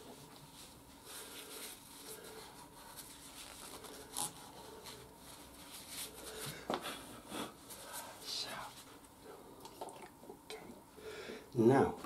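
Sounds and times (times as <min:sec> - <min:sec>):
paper tissue rustling: 0:00.0 - 0:09.1.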